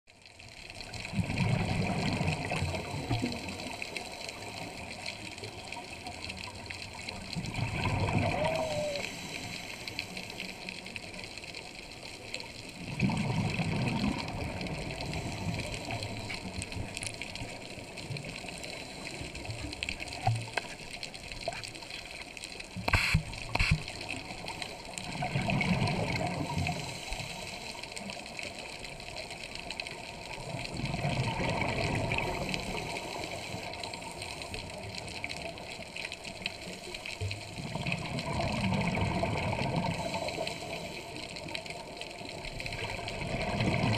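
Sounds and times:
exhaled bubbles underwater: 0.7s - 22.0s, 22.6s - 43.9s
watery hiss: 7.5s - 11.2s, 13.3s - 20.0s, 21.5s - 24.7s, 25.7s - 28.5s, 31.4s - 43.9s.

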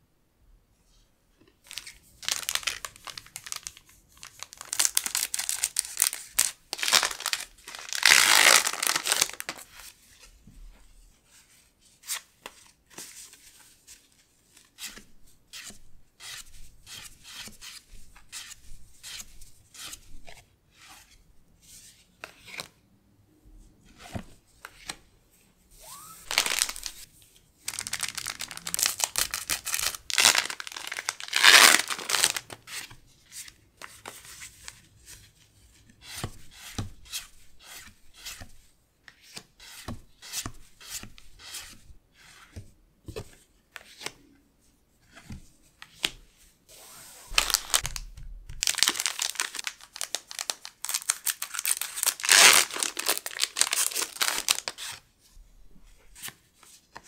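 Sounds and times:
foil wrapper crinkling and tearing: 1.7s - 9.6s, 26.2s - 27.0s, 27.7s - 32.5s, 47.3s - 48.0s, 48.6s - 54.8s.

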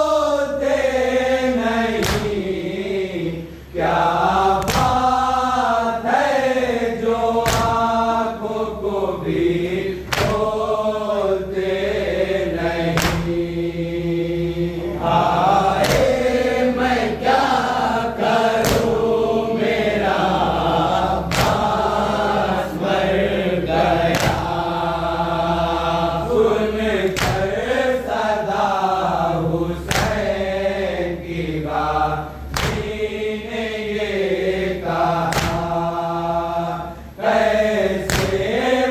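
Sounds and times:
group of voices chanting lament: 0.0s - 38.9s
hands slapping chest: 2.0s - 2.4s, 4.6s - 5.2s, 7.4s - 7.8s, 10.1s - 10.5s, 13.0s - 13.4s, 15.8s - 16.3s, 18.6s - 19.0s, 21.3s - 21.8s, 24.1s - 24.5s, 27.1s - 27.6s, 29.9s - 30.3s, 32.5s - 33.0s, 35.3s - 35.7s, 38.1s - 38.5s.

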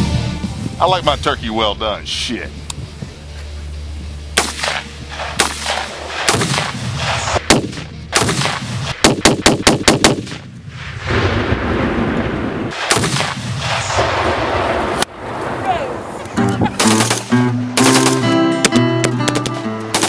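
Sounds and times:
rifle gunshots: 4.4s - 12.0s, 12.7s - 15.0s, 16.6s - 20.0s.

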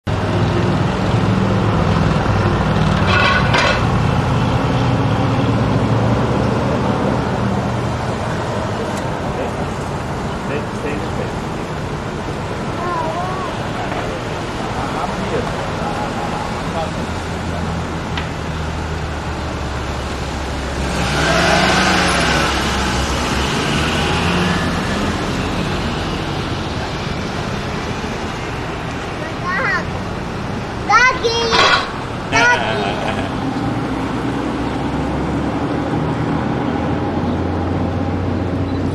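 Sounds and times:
vehicle engines humming: 0.0s - 38.9s
vehicle passing close by: 18.7s - 28.8s, 31.9s - 38.9s.

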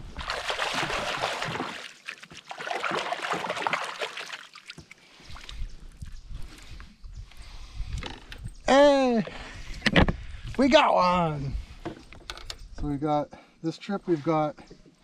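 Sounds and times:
hands splashing in water: 0.0s - 5.6s.

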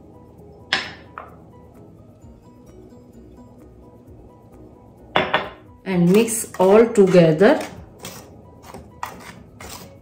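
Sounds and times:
soft background music: 0.0s - 10.0s
kitchenware knocks: 0.7s - 1.3s, 5.2s - 5.6s.

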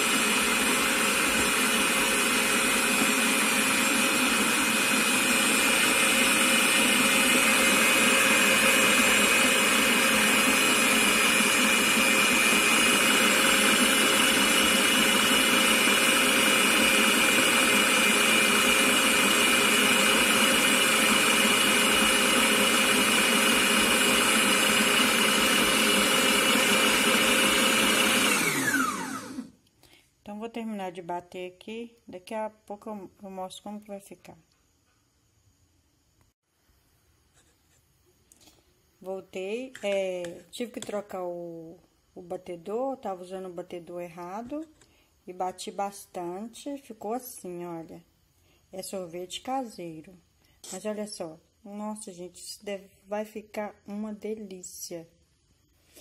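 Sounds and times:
mixer winding down: 0.0s - 29.5s
stand mixer motor whining: 0.0s - 29.5s.

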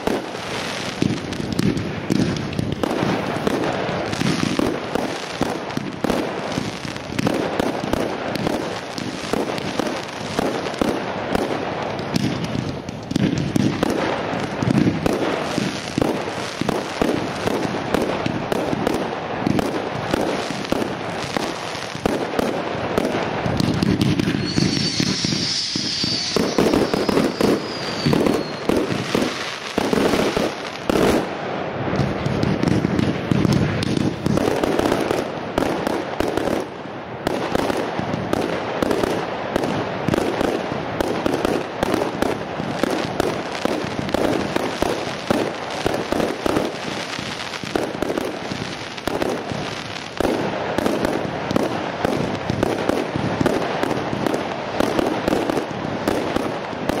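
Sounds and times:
fireworks bangs and crackling: 0.0s - 57.0s
high falling whistle: 24.2s - 28.9s.

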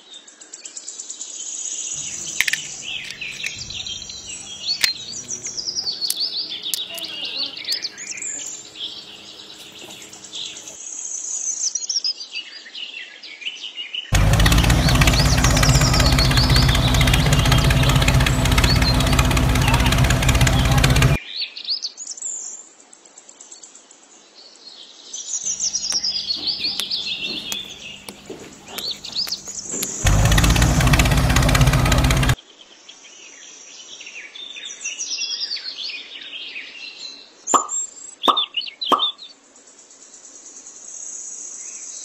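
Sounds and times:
small birds chirping: 2.0s - 10.8s, 14.1s - 21.2s, 25.5s - 32.4s, 37.5s - 39.3s
toy tractor engine rumble: 2.0s - 10.8s, 14.1s - 21.2s, 25.6s - 32.4s.

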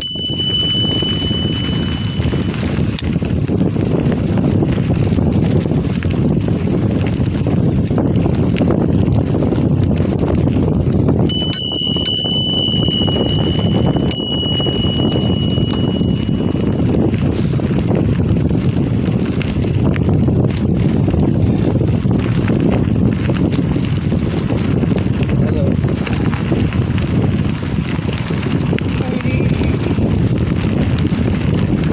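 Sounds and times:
bicycle bell ringing: 0.0s - 3.8s, 11.1s - 19.6s
bicycle tyres rumbling on dirt: 0.0s - 31.9s
wind: 0.0s - 31.9s.

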